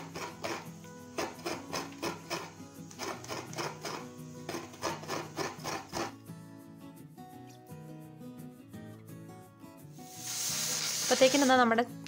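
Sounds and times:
coconut grater rasping: 0.0 - 6.2
soft background music: 0.0 - 12.0.

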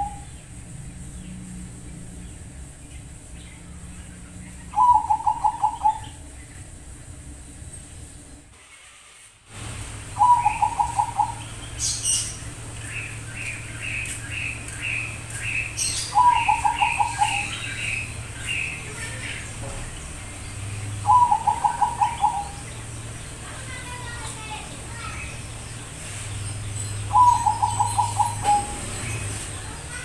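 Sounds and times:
dove cooing: 4.6 - 6.2, 10.2 - 11.5, 16.0 - 18.1, 21.0 - 22.9, 27.1 - 29.0.

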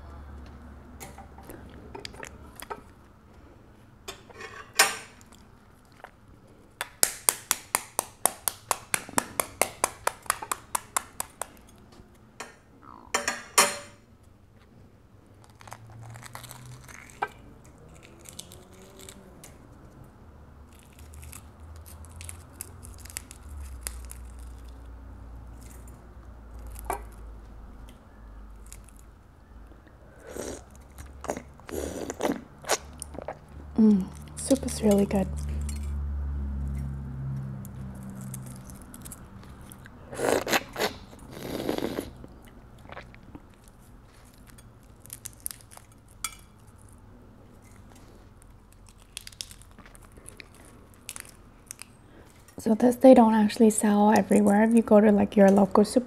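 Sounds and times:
crackling of shell bits: 20.6 - 24.9, 47.6 - 52.6.

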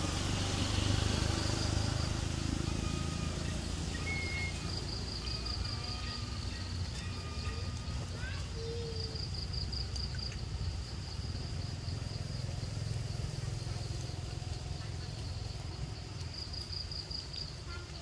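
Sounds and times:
low outdoor rumble: 0.0 - 18.0
insect buzzing: 0.1 - 14.2.

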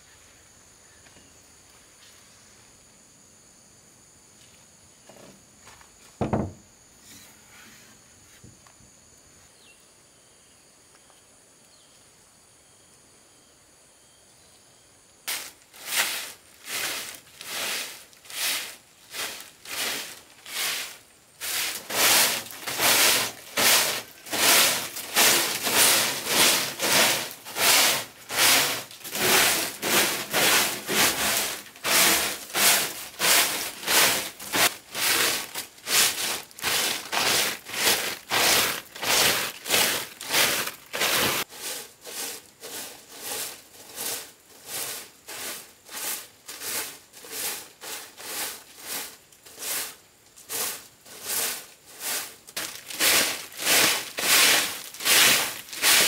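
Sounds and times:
hand tool scraping wood: 15.3 - 56.0.

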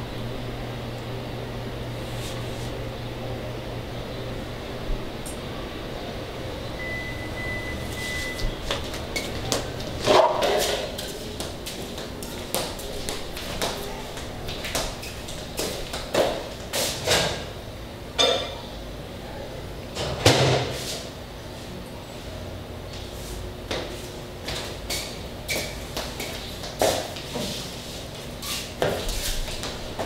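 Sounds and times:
footsteps: 7.9 - 17.0, 23.0 - 30.0.

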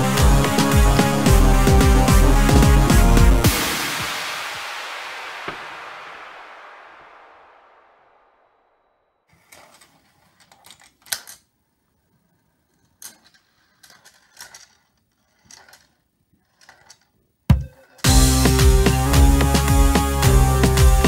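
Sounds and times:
low thump: 2.5 - 6.6
marbles rolling and clicking on track: 12.7 - 17.2.

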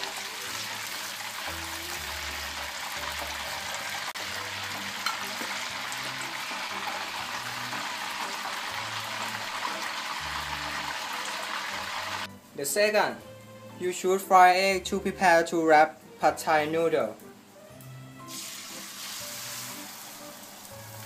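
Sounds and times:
oil sizzling in a frying pan: 0.0 - 12.4, 17.6 - 21.0.

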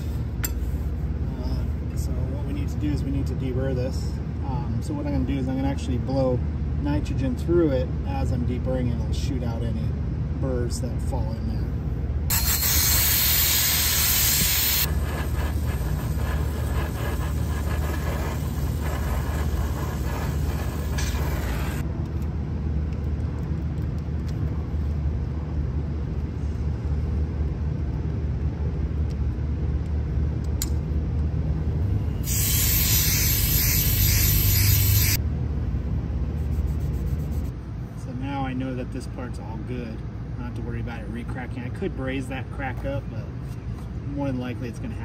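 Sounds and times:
steady low rumble: 0.0 - 43.4
gas hissing from tube: 12.3 - 21.8, 32.2 - 35.2.

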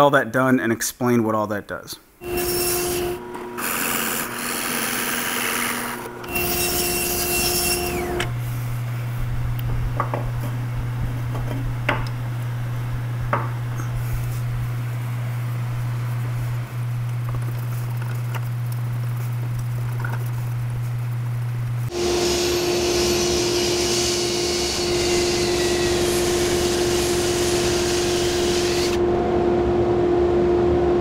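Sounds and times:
steady low hum: 2.1 - 31.0
drill press boring into wood: 2.2 - 8.4, 22.0 - 29.0.

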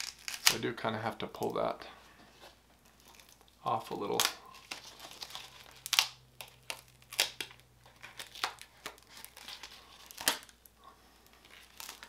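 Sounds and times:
duct tape ripping: 0.0 - 0.7, 3.0 - 10.7, 11.4 - 12.0.

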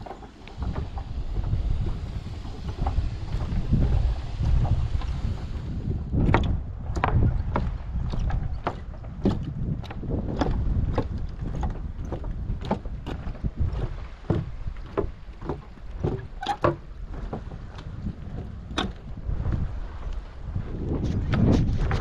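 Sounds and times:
low rumble: 0.0 - 15.2
footsteps on wooden boardwalk: 0.0 - 22.0.

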